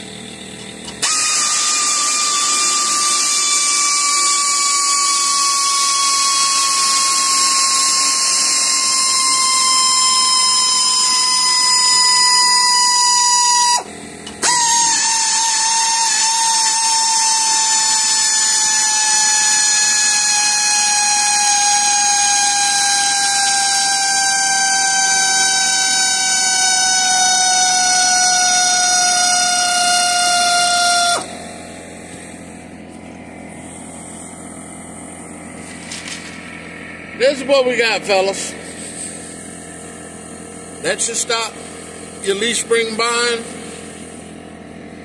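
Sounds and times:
cordless ratchet motor whine: 0:00.0 - 0:45.0.

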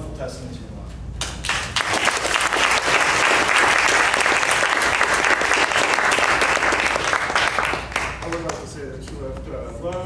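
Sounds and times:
crowd applauding: 0:01.4 - 0:08.6.

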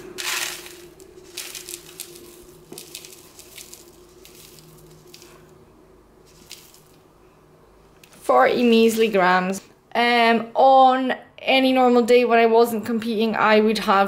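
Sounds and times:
oats pouring into plastic bowl: 0:00.0 - 0:05.5, 0:06.2 - 0:07.0.

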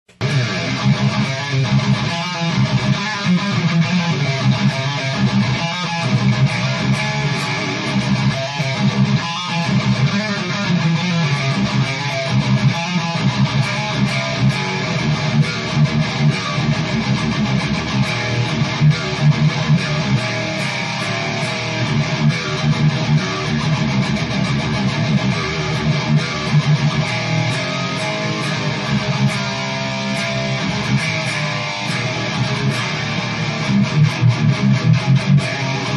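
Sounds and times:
distorted electric guitar riffing: 0:00.1 - 0:35.9.

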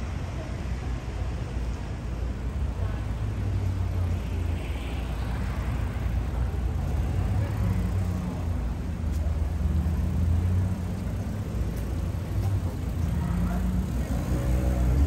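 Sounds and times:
city street noise: 0:00.0 - 0:15.0
vehicle engine humming: 0:05.4 - 0:15.0.

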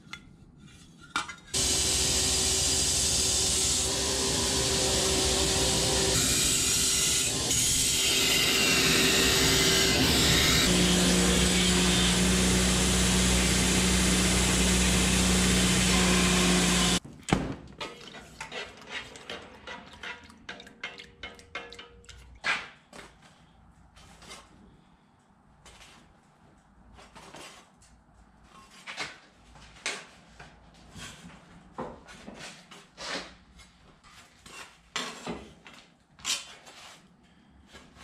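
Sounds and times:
belt grinder grinding steel: 0:01.6 - 0:17.0.

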